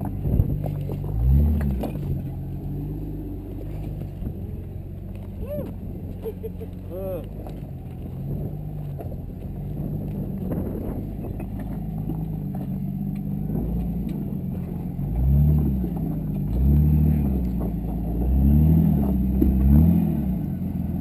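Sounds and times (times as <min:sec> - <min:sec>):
engine revving in blips: 0:00.0 - 0:21.0.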